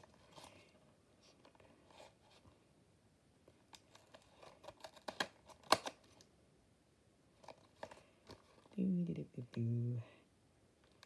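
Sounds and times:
sharp plastic snaps: 3.7s - 6.3s.

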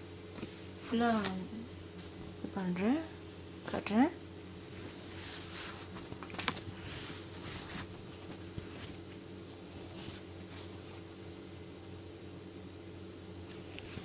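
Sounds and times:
fabric rustling and swishing: 0.3s - 2.5s, 4.6s - 11.2s.

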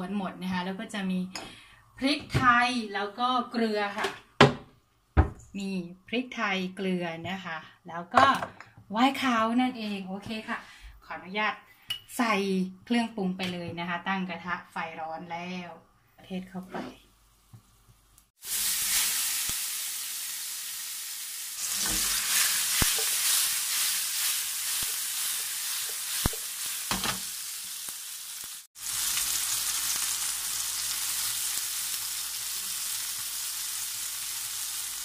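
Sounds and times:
food sizzling in oil: 17.2s - 35.0s.

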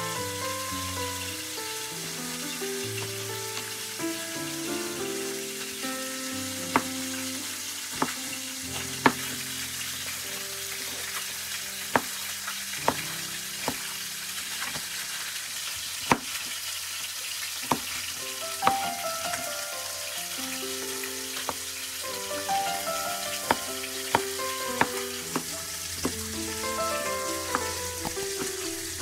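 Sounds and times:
soft background music: 0.0s - 14.5s, 18.2s - 29.0s
steady hiss: 0.0s - 29.0s
knife knocking on cutting board: 8.0s - 8.2s, 11.9s - 12.2s, 13.7s - 13.9s, 17.6s - 18.0s.

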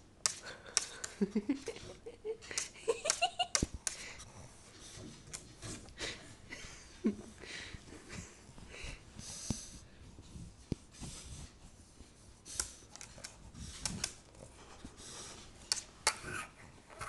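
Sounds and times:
dog sniffing: 8.2s - 16.4s.

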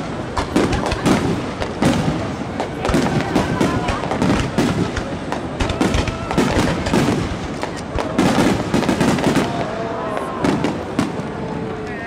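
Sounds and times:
fireworks bursting: 0.0s - 12.0s.

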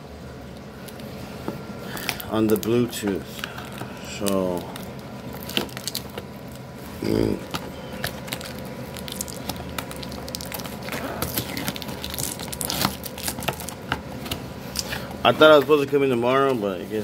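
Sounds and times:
sharp crackles and clicks: 3.4s - 6.7s, 7.4s - 13.9s.

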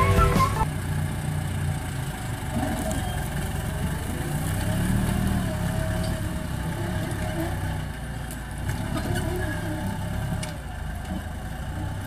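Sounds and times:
background music: 0.0s - 0.7s
tractor diesel engine under load: 0.0s - 12.0s.

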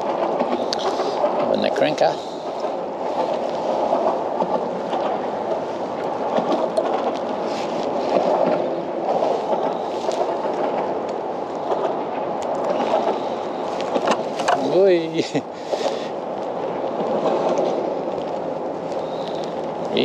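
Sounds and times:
water lapping against kayak hull: 0.0s - 14.8s, 15.4s - 20.0s
faint clicks: 15.8s - 20.0s.

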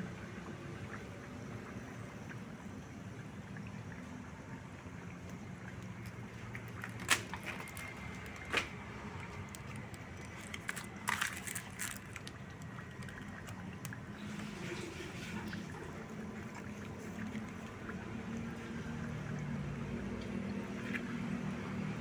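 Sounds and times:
broth boiling and bubbling: 0.0s - 22.0s
fire popping and crackling: 9.4s - 14.0s.

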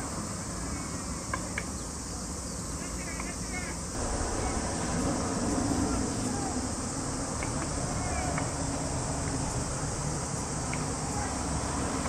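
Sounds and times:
insects buzzing: 0.0s - 12.0s
low rumble: 4.0s - 10.6s.

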